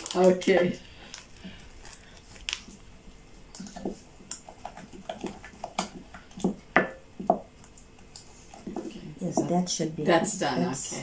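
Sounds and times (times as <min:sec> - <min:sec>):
stirring thick batter: 0:00.0 - 0:11.0
wooden spoon tapping glass bowl: 0:05.8 - 0:07.5.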